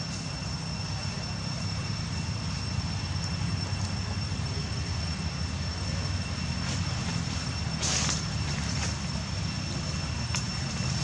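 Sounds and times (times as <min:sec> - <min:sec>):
low mechanical drone: 0:00.0 - 0:11.0
thin high whine: 0:00.0 - 0:11.0.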